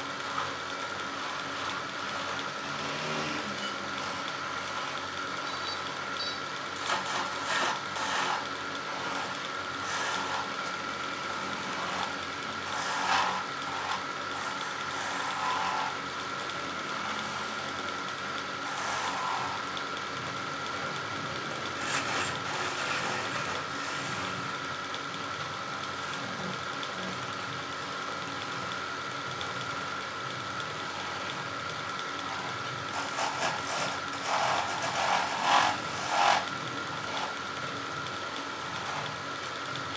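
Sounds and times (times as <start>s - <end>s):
wood lathe humming: 0.0s - 24.8s, 25.4s - 39.9s
chisel scraping wood: 6.8s - 10.7s, 11.6s - 16.0s, 18.6s - 19.6s, 21.8s - 24.4s, 32.3s - 37.4s.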